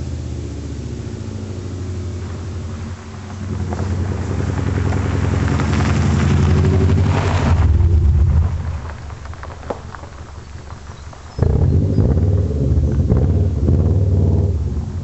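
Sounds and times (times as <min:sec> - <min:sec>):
tyres crunching on gravel: 0:01.0 - 0:15.0
boxer engine rumble driving past: 0:11.4 - 0:15.0.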